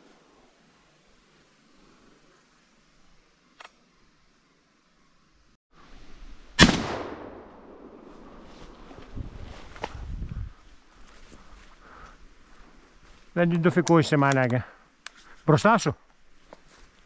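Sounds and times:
shotgun shot with echo: 6.6 - 7.5.

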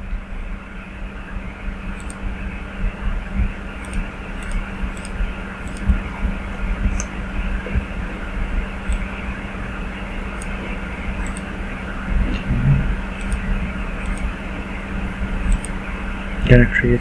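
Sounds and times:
background hum and hiss: 0.0 - 17.0.

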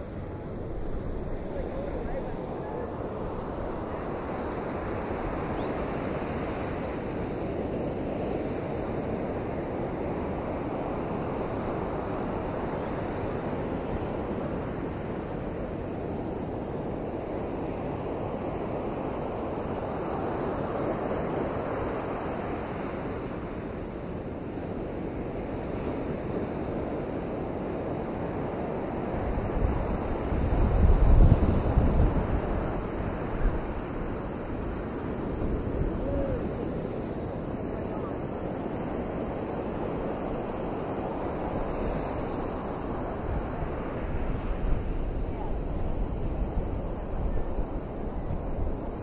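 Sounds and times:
strong wind: 0.0 - 49.0
surf washing in: 0.0 - 49.0
wind buffeting microphone: 26.8 - 49.0.

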